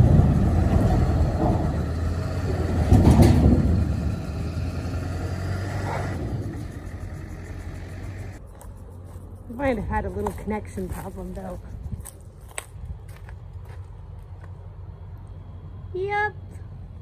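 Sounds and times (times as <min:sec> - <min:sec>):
diesel engine working hard: 0:00.0 - 0:08.6.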